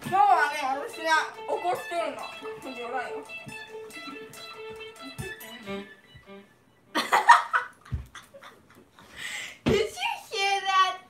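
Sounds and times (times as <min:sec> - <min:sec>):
electric guitar notes: 0:00.0 - 0:07.0.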